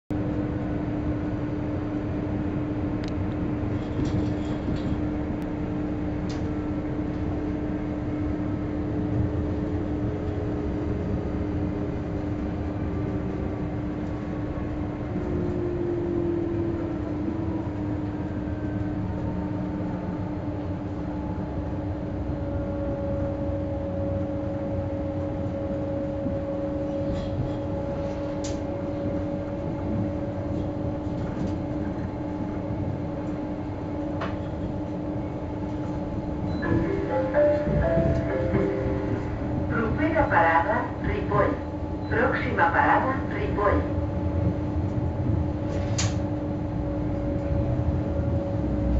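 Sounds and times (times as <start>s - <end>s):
train rumbling on track: 0.1s - 48.9s
higher tone: 36.5s - 39.7s.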